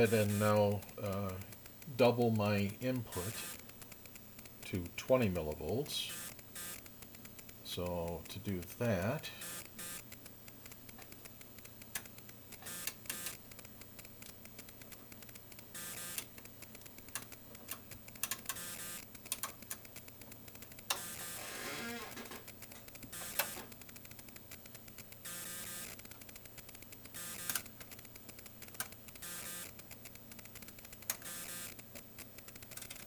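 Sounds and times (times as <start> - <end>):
faint low hum: 0.0 - 19.1.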